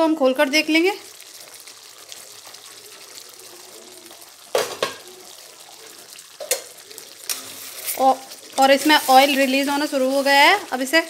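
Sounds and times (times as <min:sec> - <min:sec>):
gravy sizzling in a pan: 0:00.0 - 0:11.0.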